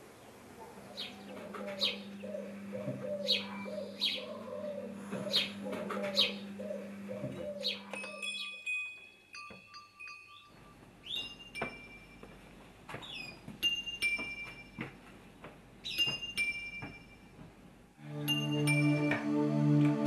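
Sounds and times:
small birds chirping: 0:00.0 - 0:08.7, 0:10.1 - 0:11.6, 0:12.9 - 0:13.5, 0:15.8 - 0:16.2
steady low hum: 0:00.0 - 0:08.8, 0:10.5 - 0:20.0
bell-like chime tones: 0:07.9 - 0:12.4, 0:18.1 - 0:19.2.

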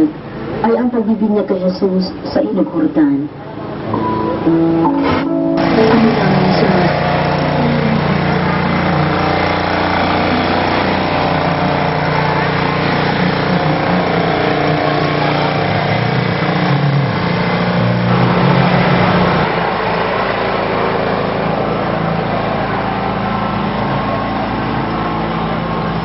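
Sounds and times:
small engine humming: 0:05.6 - 0:26.0.

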